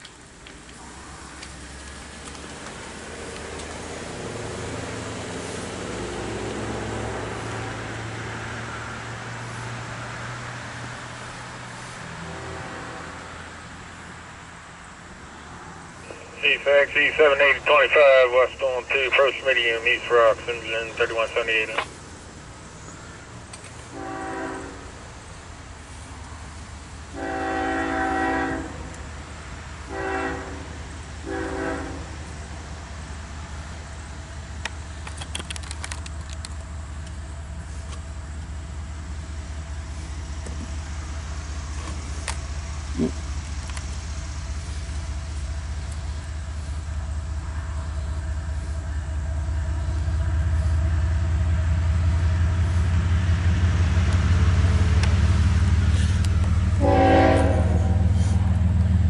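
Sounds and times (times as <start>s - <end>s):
locomotive engine drone: 0.0s - 59.0s
locomotive horn blasts: 11.8s - 13.4s, 23.9s - 25.0s, 27.1s - 29.0s, 29.8s - 32.3s, 56.7s - 58.6s.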